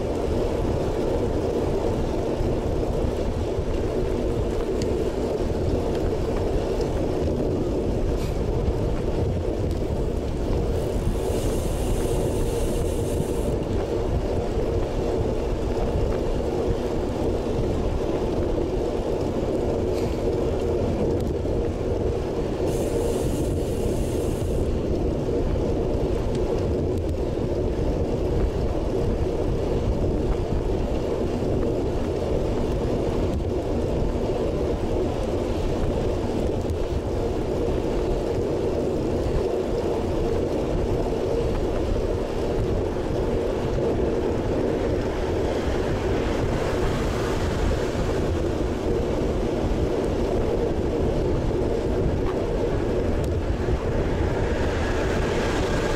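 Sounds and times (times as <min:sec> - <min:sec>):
bicycle tyre rumble: 0:00.0 - 0:55.9
wind noise: 0:00.0 - 0:55.9
high-pitched hiss: 0:11.2 - 0:13.5.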